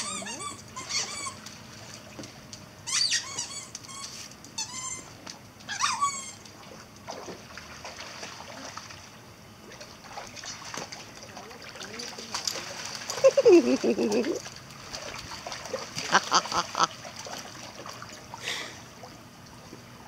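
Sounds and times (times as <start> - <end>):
dog whining: 0.0 - 1.5, 2.8 - 5.1, 5.7 - 6.4.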